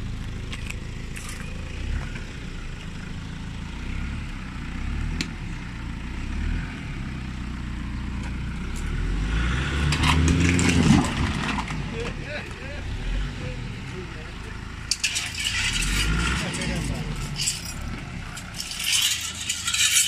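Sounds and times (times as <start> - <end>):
engine running under load: 0.0 - 20.0.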